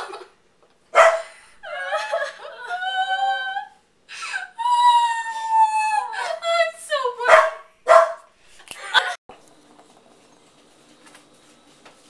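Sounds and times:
young women laughing: 0:01.2 - 0:04.8, 0:08.7 - 0:09.2.

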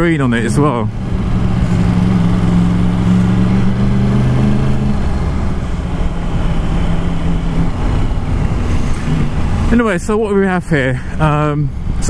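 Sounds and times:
motorcycle engine accelerating: 0:00.0 - 0:09.9.

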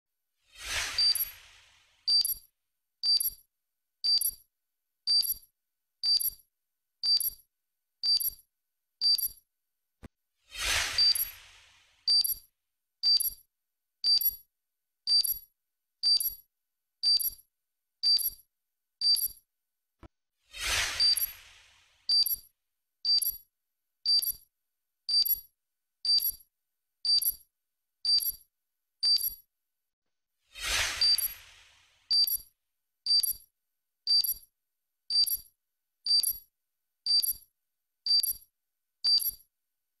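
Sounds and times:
whoosh: 0:00.6 - 0:01.9, 0:10.5 - 0:11.8, 0:20.5 - 0:22.0, 0:30.6 - 0:32.0
electronic tick-beep: 0:00.8 - 0:01.4, 0:02.1 - 0:06.4, 0:07.0 - 0:07.4, 0:08.0 - 0:08.4, 0:09.0 - 0:09.4, 0:11.0 - 0:11.4, 0:12.1 - 0:17.4, 0:18.0 - 0:18.4, 0:19.0 - 0:19.4, 0:20.9 - 0:21.5, 0:22.1 - 0:22.5, 0:23.1 - 0:24.5, 0:25.1 - 0:25.5, 0:26.1 - 0:29.4, 0:31.0 - 0:31.5, 0:32.1 - 0:32.5, 0:33.1 - 0:33.5, 0:34.1 - 0:34.5, 0:35.1 - 0:35.5, 0:36.1 - 0:36.5, 0:37.1 - 0:37.5, 0:38.1 - 0:38.5, 0:39.1 - 0:39.5.

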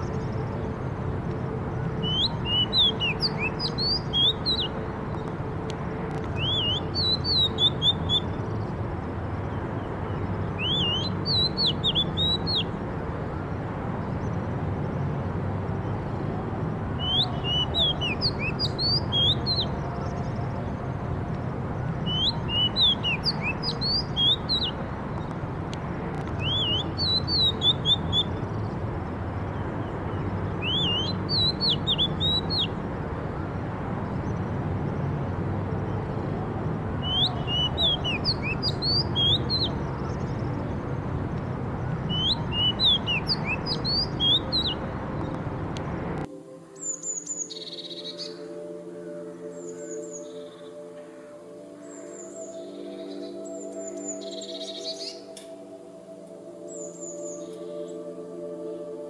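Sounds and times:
bird singing whistled notes: 0:01.9 - 0:05.3, 0:06.2 - 0:08.8, 0:09.8 - 0:12.8, 0:17.0 - 0:20.8, 0:21.8 - 0:25.4, 0:26.3 - 0:28.8, 0:29.5 - 0:32.8, 0:37.0 - 0:40.8, 0:41.8 - 0:45.4, 0:46.8 - 0:48.4, 0:51.8 - 0:55.7, 0:56.6 - 0:58.0.

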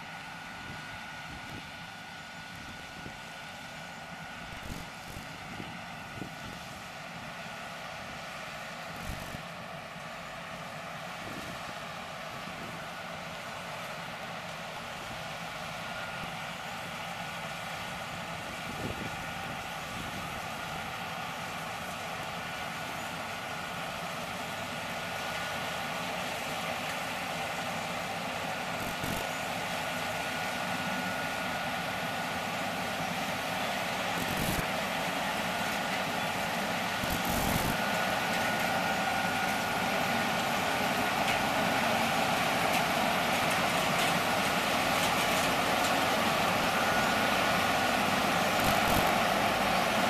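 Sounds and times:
combine harvester running: 0:00.0 - 0:50.0
thin high whine: 0:28.8 - 0:29.5, 0:36.9 - 0:38.0, 0:48.4 - 0:49.6.

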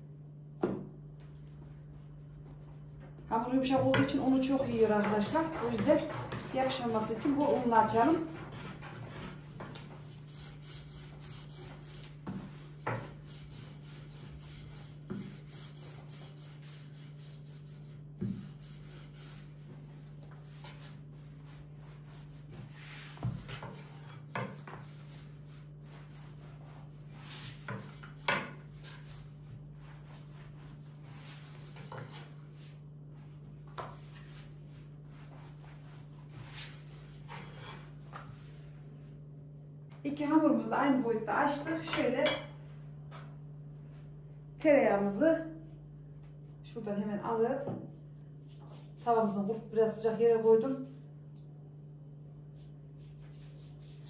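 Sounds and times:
rolling pin rolling over dough: 0:01.5 - 0:38.6.

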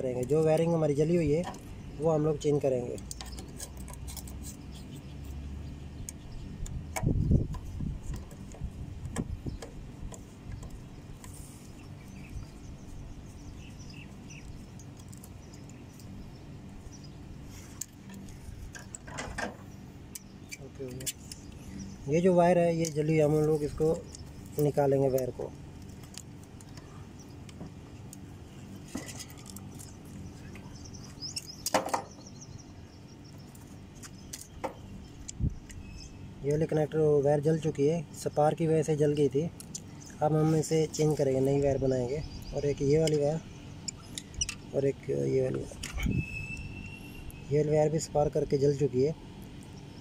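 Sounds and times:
steady low hum: 0:00.0 - 0:50.0
hand tools clicking and tapping: 0:03.0 - 0:04.4.

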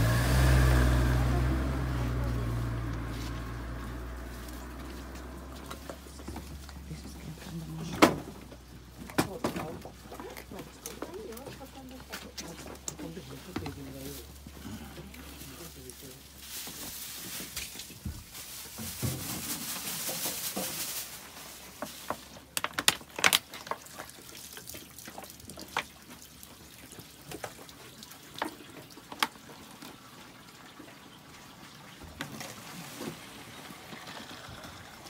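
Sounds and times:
water running into plastic bottle: 0:00.3 - 0:30.9, 0:31.5 - 0:35.0.

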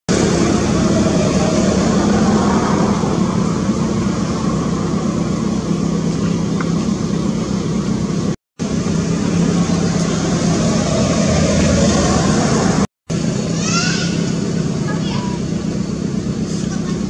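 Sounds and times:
loud mechanical hum: 0:00.1 - 0:17.0.

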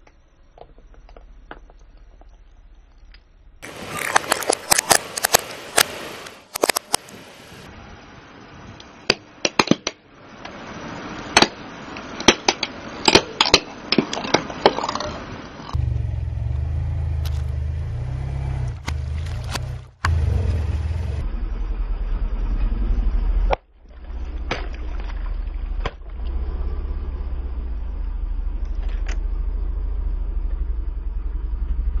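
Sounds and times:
car engine low rumble: 0:15.7 - 0:32.0.

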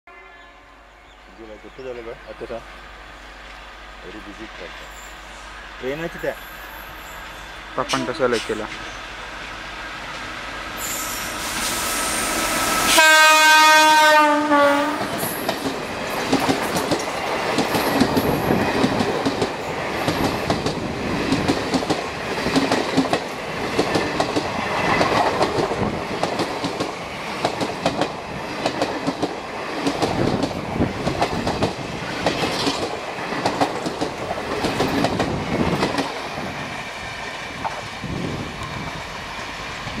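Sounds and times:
train horn: 0:00.1 - 0:01.1, 0:12.8 - 0:15.1
train wheels clickety-clack: 0:15.0 - 0:39.5.

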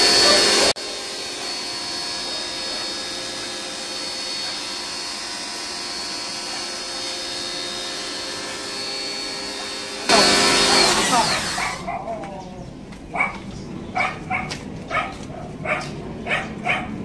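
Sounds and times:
pressure washer motor whine: 0:00.0 - 0:12.0.

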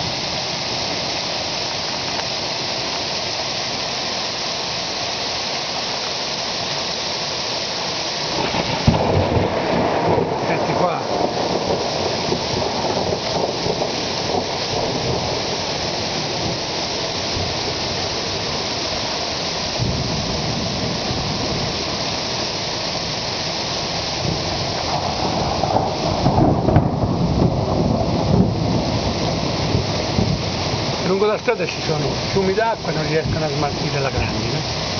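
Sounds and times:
hail and rain pelting roofs: 0:08.2 - 0:22.5, 0:23.8 - 0:34.9
low thunder rumbling: 0:08.3 - 0:18.6, 0:19.7 - 0:22.4, 0:23.9 - 0:34.9.

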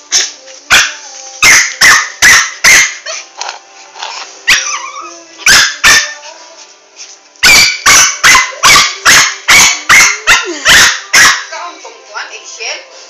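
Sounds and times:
small dog barking: 0:00.1 - 0:03.2, 0:05.5 - 0:06.2, 0:07.4 - 0:11.5.

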